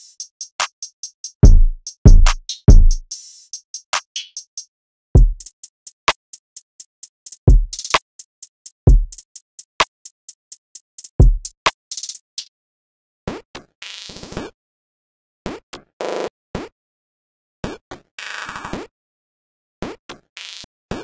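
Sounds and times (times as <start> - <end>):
trap drum loop: 0.0 - 12.5.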